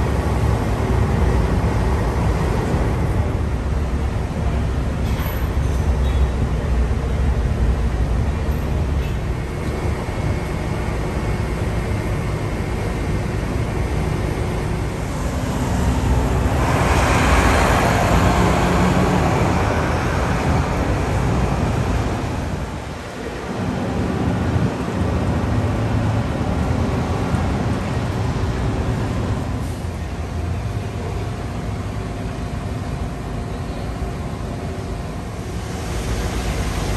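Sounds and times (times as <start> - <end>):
traffic rumble: 0.0 - 36.9
vehicle passing close: 15.1 - 22.6.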